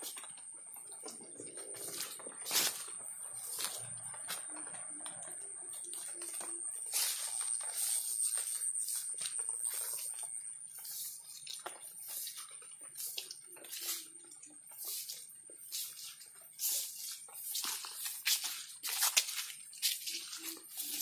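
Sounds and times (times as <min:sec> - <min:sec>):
footsteps through long grass: 0:01.1 - 0:21.0.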